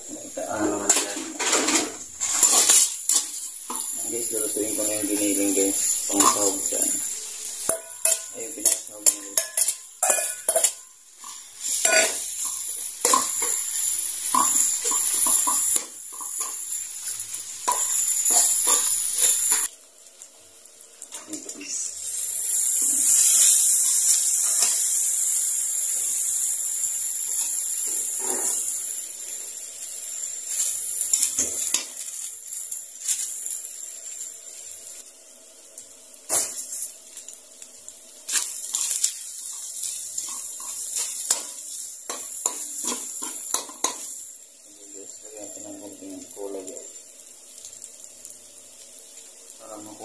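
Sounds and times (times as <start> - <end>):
meat sizzling in oil: 0.0 - 50.0
metal spatula scraping a pan: 1.4 - 3.4, 7.7 - 13.6.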